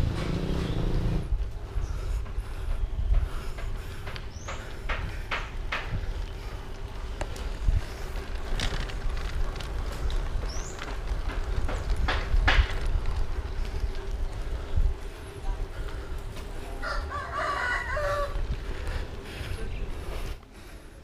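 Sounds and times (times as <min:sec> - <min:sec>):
bike clicks and rattles: 0:00.0 - 0:16.6
wind rumble on microphone: 0:00.0 - 0:20.4
bicycle tyre noise: 0:00.0 - 0:21.0.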